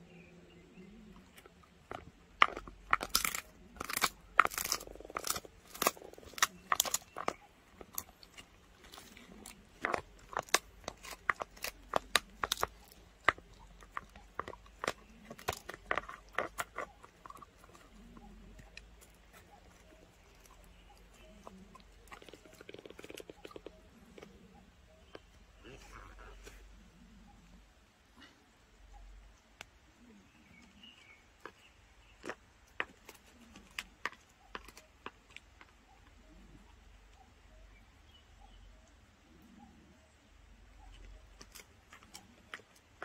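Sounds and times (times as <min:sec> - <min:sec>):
dog crunching on a chew: 0:01.4 - 0:24.3.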